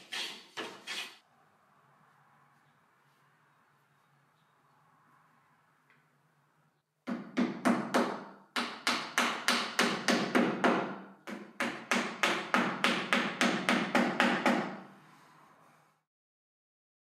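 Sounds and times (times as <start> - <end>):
hammer tapping on wood: 7.1 - 14.8.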